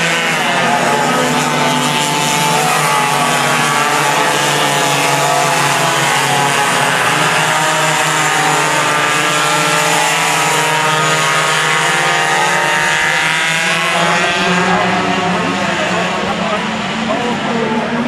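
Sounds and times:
kart engines droning: 0.0s - 18.0s.

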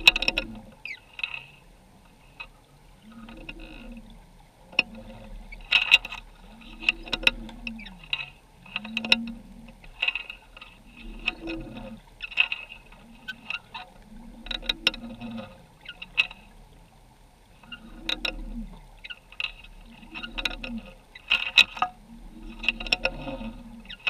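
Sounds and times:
low moaning tones: 0.0s - 0.8s, 2.8s - 5.6s, 6.3s - 12.2s, 12.8s - 17.0s, 21.8s - 24.0s
underwater clicks and knocks: 0.0s - 24.0s.

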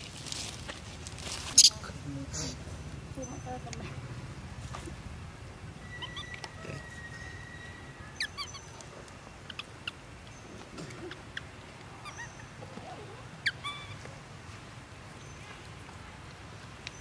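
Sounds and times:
baby monkey squeaking cries: 1.6s - 1.8s, 5.8s - 8.7s, 11.1s - 12.6s, 13.4s - 14.0s.

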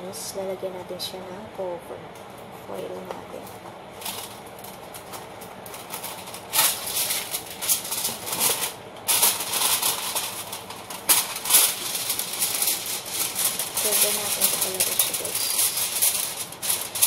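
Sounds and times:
aluminum foil crinkling: 2.9s - 17.0s
sharp foil crackle: 3.4s - 17.0s.

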